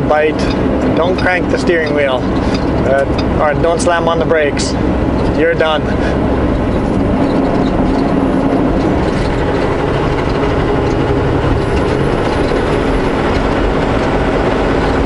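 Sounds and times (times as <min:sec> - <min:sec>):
truck engine drone: 0:00.0 - 0:15.0
tyre and road noise: 0:00.0 - 0:15.0.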